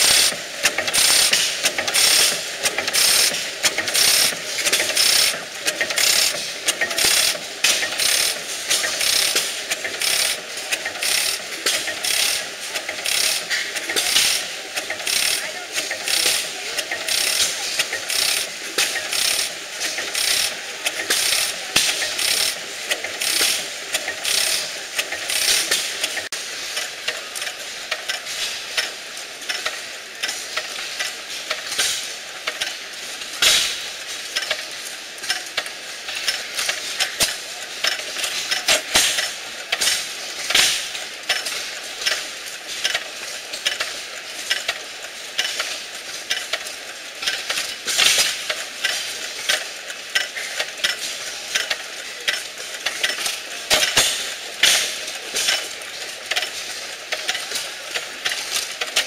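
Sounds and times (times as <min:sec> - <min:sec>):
old gas engines clattering: 0:00.0 - 0:59.0.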